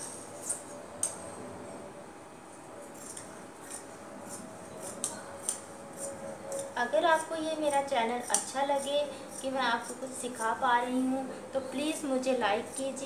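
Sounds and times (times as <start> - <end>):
scissors snipping fabric: 2.9 - 10.5.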